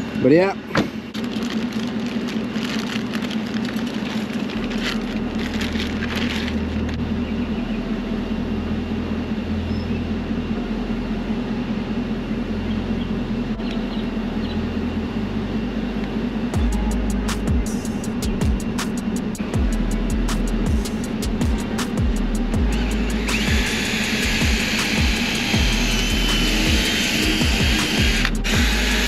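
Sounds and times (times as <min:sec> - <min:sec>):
vehicle engine idling: 0:00.0 - 0:29.0
parts clicking and rustling: 0:01.1 - 0:07.0.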